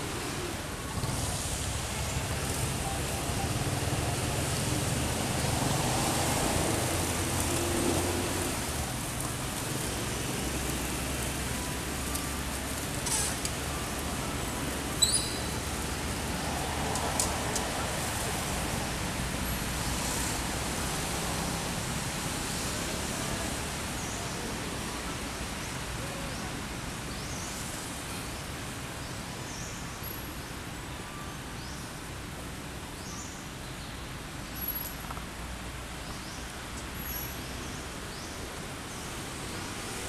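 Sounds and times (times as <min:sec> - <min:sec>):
high-pitched bird chirps: 0:15.0 - 0:15.5.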